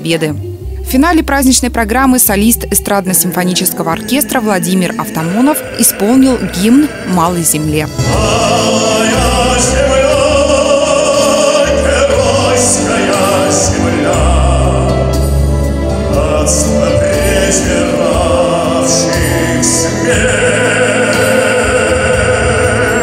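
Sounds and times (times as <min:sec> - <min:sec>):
orchestral accompaniment: 0:00.0 - 0:23.0
man singing into microphone: 0:05.0 - 0:07.3, 0:07.9 - 0:23.0.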